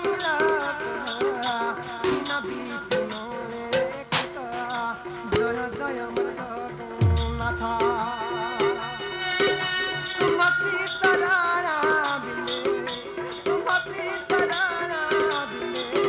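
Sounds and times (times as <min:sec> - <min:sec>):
dhol drumming: 0:00.0 - 0:06.4, 0:07.0 - 0:16.0
sharp metallic strikes: 0:07.0 - 0:08.2.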